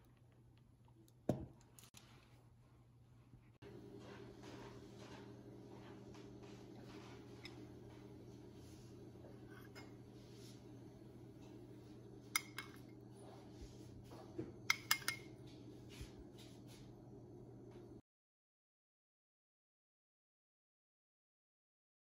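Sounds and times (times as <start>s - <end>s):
faint steady hum: 0.0s - 18.0s
metal spoon clinking on ceramic dishes: 12.3s - 12.9s, 14.7s - 15.3s.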